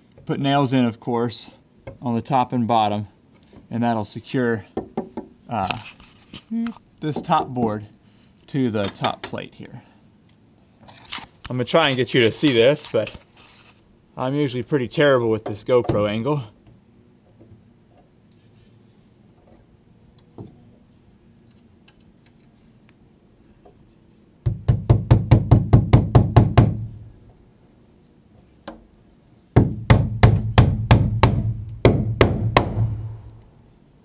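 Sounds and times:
hammer striking nails into metal: 0:24.5 - 0:26.9, 0:29.6 - 0:33.1.

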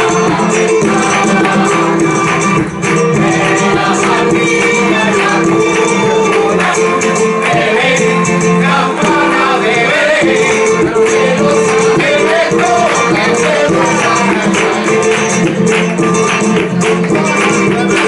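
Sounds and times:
hand clapping beat: 0:00.0 - 0:18.0
strummed guitar: 0:00.0 - 0:18.0
man singing into a microphone: 0:07.5 - 0:15.0.

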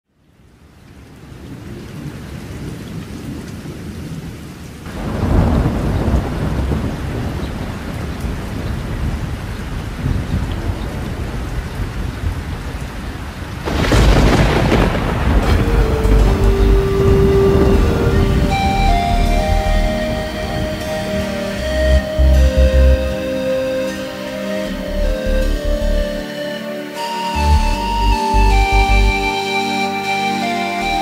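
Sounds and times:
steady rain falling: 0:00.1 - 0:31.0
thunder rolling: 0:04.9 - 0:24.0.

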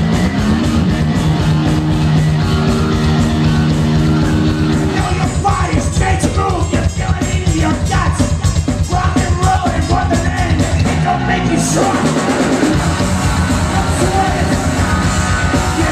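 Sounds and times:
live rock band playing: 0:00.0 - 0:15.9
shouted singing vocal: 0:04.9 - 0:15.9.

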